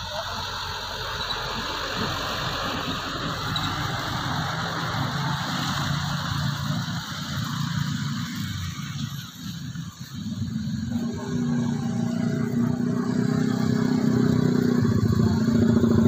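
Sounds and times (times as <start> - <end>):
passing truck engine hum: 0.0 - 16.0
road traffic rumble: 0.0 - 16.0.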